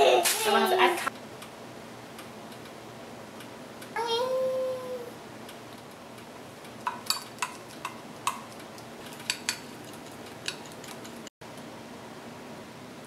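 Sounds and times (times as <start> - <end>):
stirrer clinking against glass: 6.8 - 11.3.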